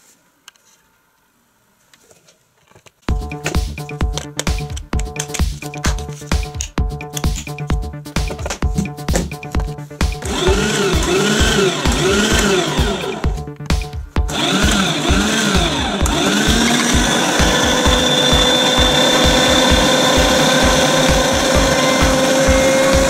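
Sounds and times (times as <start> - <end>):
background music with beat: 3.1 - 23.0
meat grinder motor running: 10.2 - 13.3, 14.3 - 23.0.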